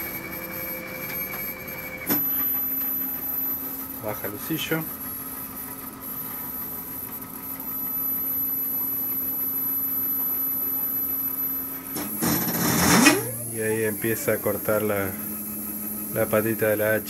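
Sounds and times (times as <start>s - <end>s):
stepper motors humming: 12.0s - 17.0s.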